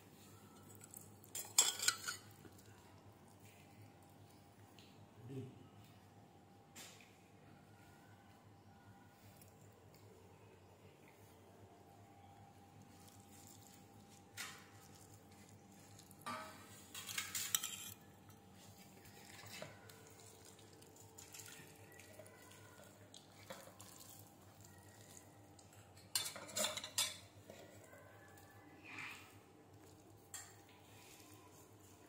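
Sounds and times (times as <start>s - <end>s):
steel spoons clinking on vessels: 0.6s - 2.4s, 16.0s - 18.4s, 26.0s - 27.8s.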